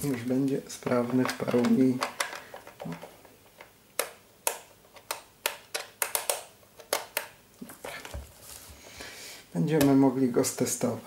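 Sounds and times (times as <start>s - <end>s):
plastic housing clicks and taps: 3.6s - 7.3s.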